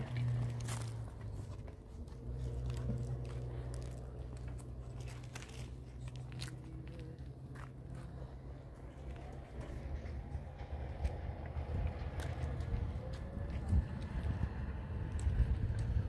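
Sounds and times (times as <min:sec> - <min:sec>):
footsteps crunching on gravel: 0:00.0 - 0:10.3
low rumble: 0:00.0 - 0:16.0.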